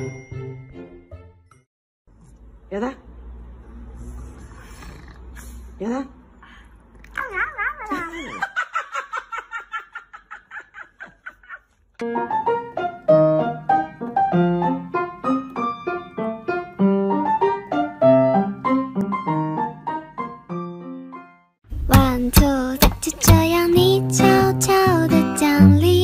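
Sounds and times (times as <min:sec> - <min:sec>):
piano music: 0:00.0 - 0:01.6, 0:12.0 - 0:26.0.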